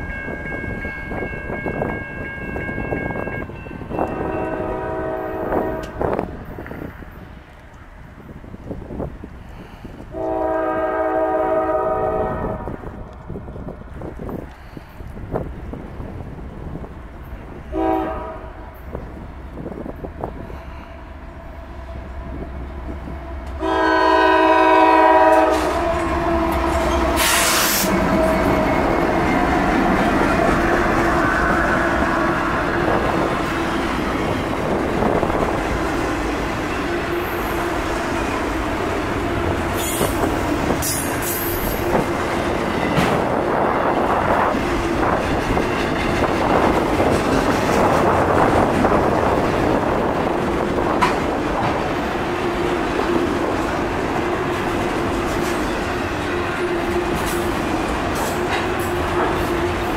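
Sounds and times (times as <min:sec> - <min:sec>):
railcar clanks: 0:00.0 - 0:12.0, 0:22.0 - 0:59.9
train wheels on rails: 0:00.0 - 0:59.9
train horn blast: 0:04.0 - 0:06.2, 0:10.1 - 0:12.9, 0:17.7 - 0:18.7, 0:22.3 - 0:33.5.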